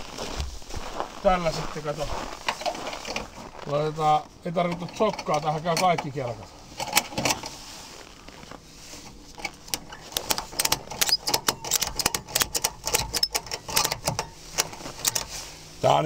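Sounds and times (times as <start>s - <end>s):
ratchet strap clicking: 9.7s - 15.4s.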